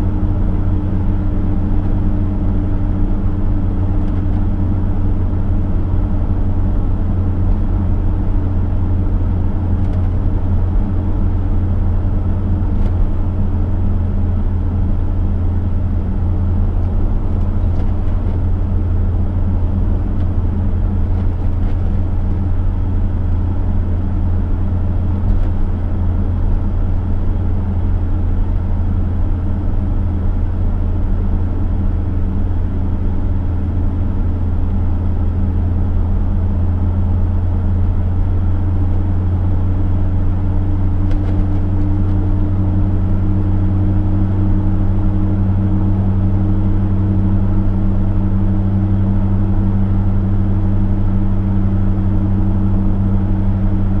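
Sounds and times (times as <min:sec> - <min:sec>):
car engine droning: 0:00.0 - 0:54.0
road noise: 0:00.0 - 0:54.0.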